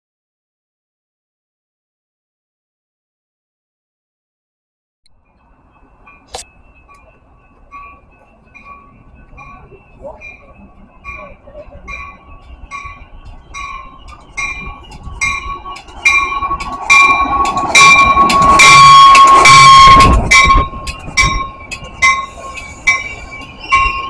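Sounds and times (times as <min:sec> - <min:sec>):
train passing platform: 0:05.1 - 0:24.0
warning bells dinging: 0:05.2 - 0:24.0
loud train horn blast: 0:18.3 - 0:20.2.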